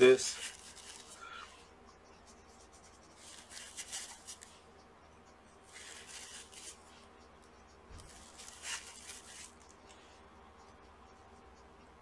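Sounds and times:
cotton swab rubbing on chip: 0.1 - 4.6, 5.6 - 7.3, 7.9 - 9.8.

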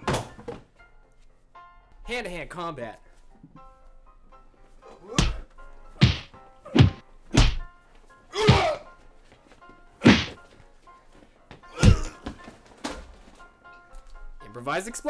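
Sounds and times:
faint background music: 0.0 - 15.0
punch and slap hits: 5.1 - 7.7, 8.4 - 8.8, 10.0 - 10.4.

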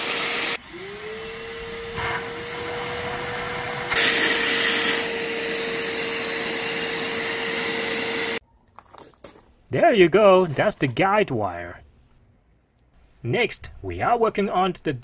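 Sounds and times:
vacuum cleaner whining: 0.0 - 8.4.

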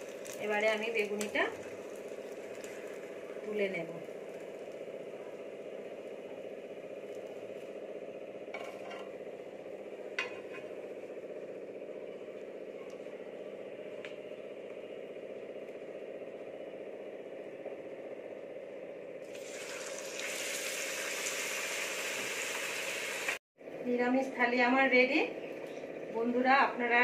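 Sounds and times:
steady low hum: 0.0 - 20.1.

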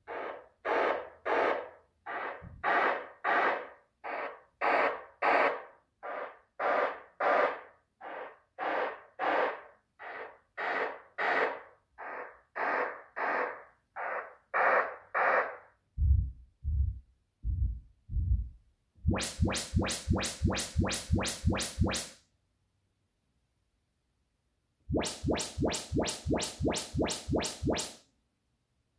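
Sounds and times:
deep subwoofer bursts: 16.0 - 22.0
rising sweep tones: 19.1 - 22.1, 24.9 - 28.0.

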